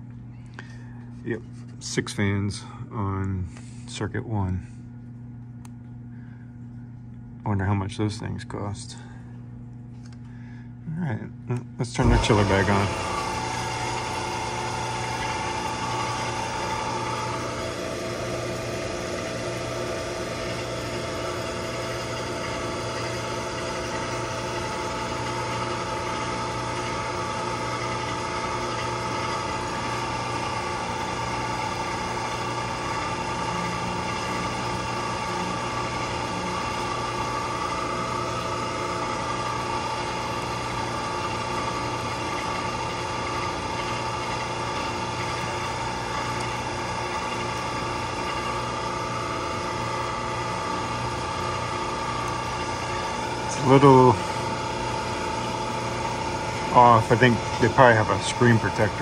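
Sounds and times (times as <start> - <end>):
machinery hum: 0.0 - 59.0
steady tones: 12.0 - 17.2.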